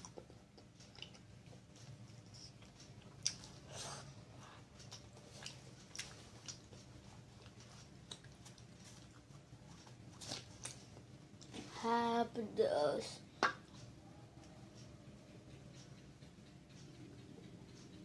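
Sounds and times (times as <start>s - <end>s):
chewing and biting: 0.0s - 11.5s.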